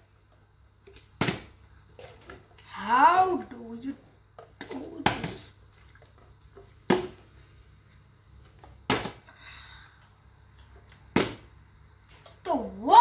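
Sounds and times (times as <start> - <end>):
plastic bottle striking tile floor: 0.9 - 2.2, 6.8 - 7.2, 8.6 - 9.3, 11.1 - 11.5.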